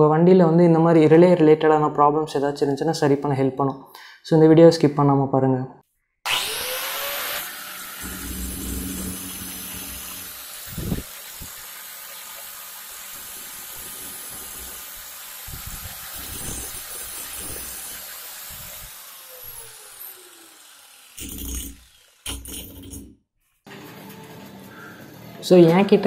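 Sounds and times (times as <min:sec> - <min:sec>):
angle grinder cutting steel: 0:06.2 - 0:23.1.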